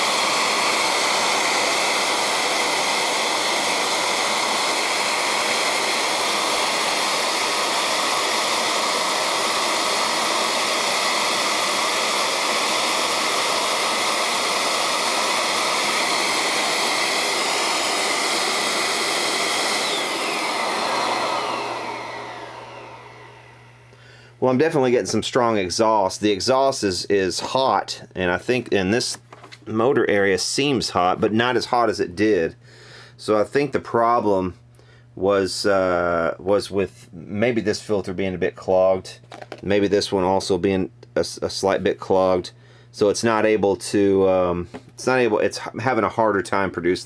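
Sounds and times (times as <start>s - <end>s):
vacuum cleaner winding down: 0.0s - 24.0s
vacuum cleaner motor running: 0.0s - 24.1s.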